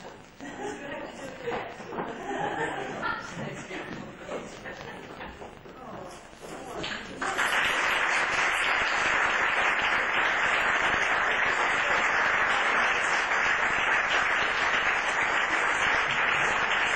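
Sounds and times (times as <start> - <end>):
audience applauding: 6.8 - 16.9.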